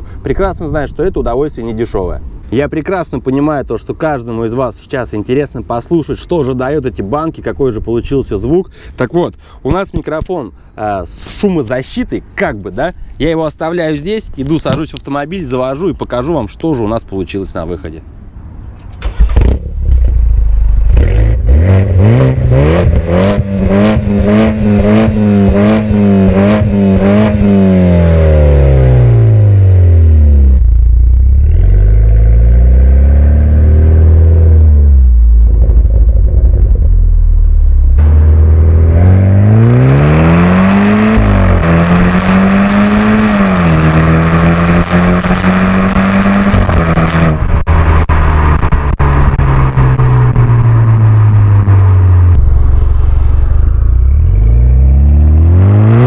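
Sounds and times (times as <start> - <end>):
car engine revving: 19.0 - 56.0.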